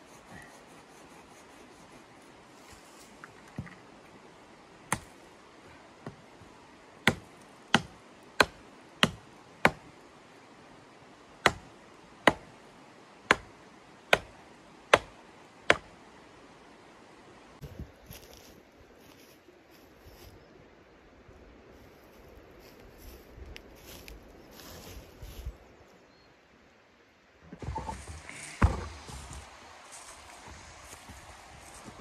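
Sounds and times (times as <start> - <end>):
hatchet chopping wooden pole: 4.9 - 5.1, 7.0 - 9.8, 11.4 - 12.5, 13.3 - 13.5, 14.1 - 15.9.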